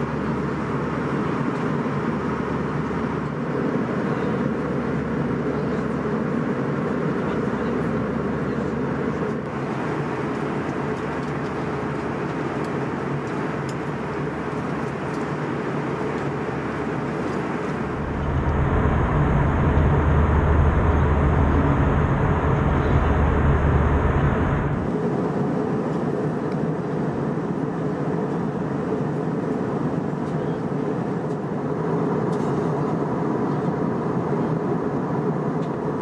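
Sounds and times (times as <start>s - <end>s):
airliner cabin noise: 0.0s - 36.0s
deep low rumble: 17.6s - 24.9s.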